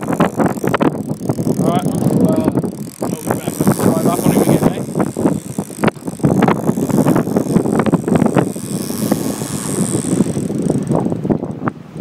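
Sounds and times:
sea water rushing along hull: 0.0s - 12.0s
wind buffeting microphone: 0.0s - 12.0s.

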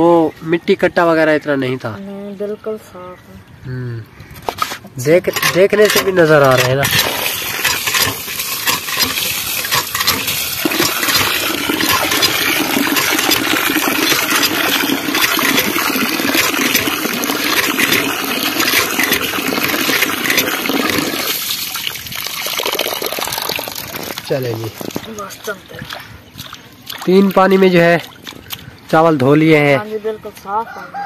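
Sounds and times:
water sloshing while washing rice: 5.3s - 29.2s.

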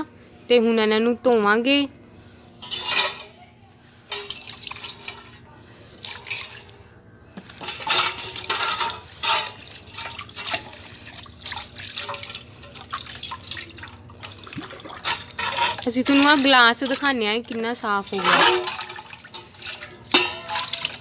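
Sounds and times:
metal vessels clinking: 2.6s - 3.4s, 4.0s - 21.0s
water splashing and pouring: 6.0s - 6.7s, 7.6s - 21.0s.

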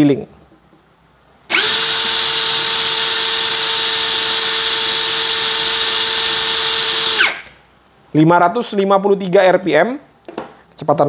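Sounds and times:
impact drill whining: 1.5s - 7.6s.

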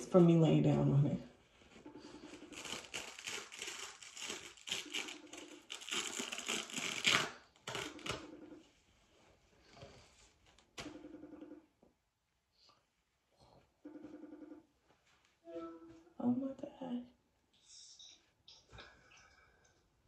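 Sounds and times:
dressing pads crinkling and rustling: 1.5s - 8.2s.

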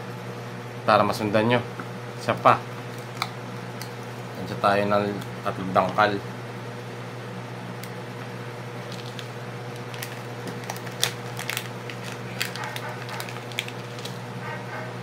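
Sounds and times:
low background hum: 0.0s - 15.0s.

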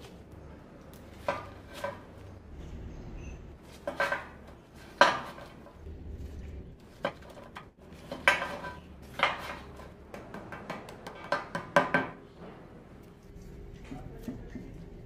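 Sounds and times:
plates clacking on metal table: 3.2s - 5.8s, 7.0s - 12.2s.

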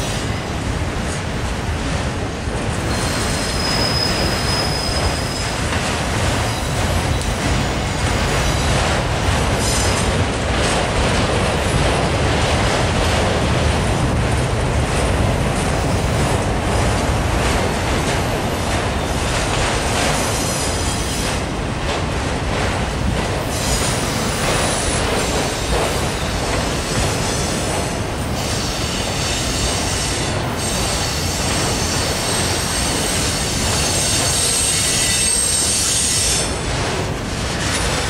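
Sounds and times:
freight train rumbling and rattling: 0.0s - 38.0s
high wheel squeals: 2.9s - 5.6s, 30.6s - 36.5s.

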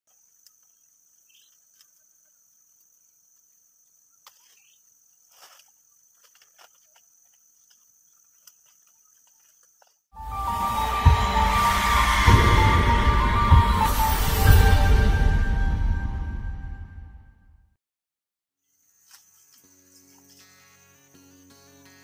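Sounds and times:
leaves rustling and branches snapping: 5.3s - 9.8s
high-pitched insect drone: 10.2s - 15.8s
loud music: 10.2s - 17.2s.

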